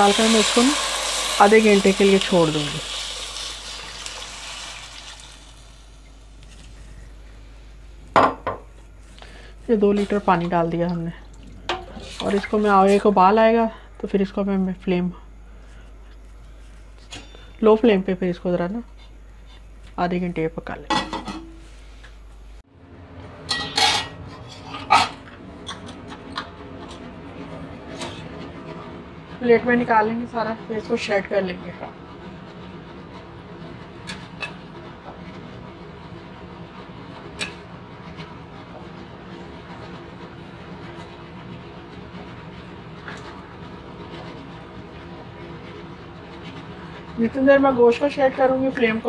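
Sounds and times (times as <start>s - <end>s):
water pouring into a pot: 0.0s - 6.0s.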